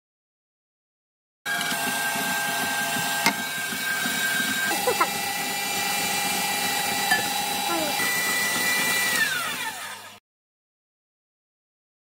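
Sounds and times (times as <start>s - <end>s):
kitchen appliance motor whining: 1.5s - 10.2s.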